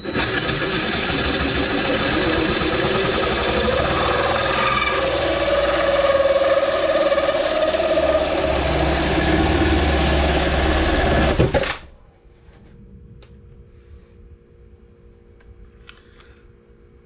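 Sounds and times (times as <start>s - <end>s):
drill motor whine: 0.0s - 11.7s
hole saw grinding through plastic: 0.0s - 11.7s.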